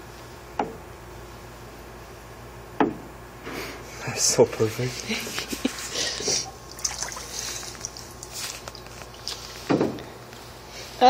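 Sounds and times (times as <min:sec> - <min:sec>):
hand splashing water: 0:06.2 - 0:09.7
water dripping: 0:06.4 - 0:09.7.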